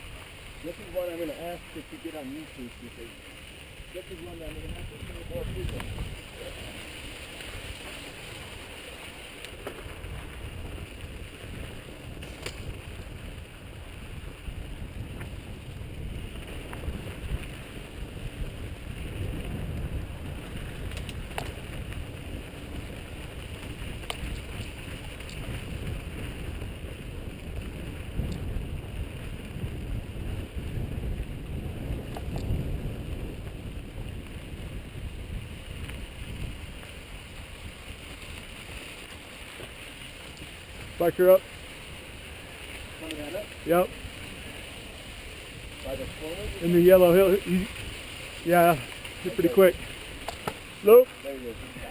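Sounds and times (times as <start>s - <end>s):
bike tyres rumbling on dirt: 0.0s - 51.9s
wind buffeting microphone: 0.0s - 51.9s
bike clicks and rattles: 4.2s - 41.0s, 46.6s - 50.8s.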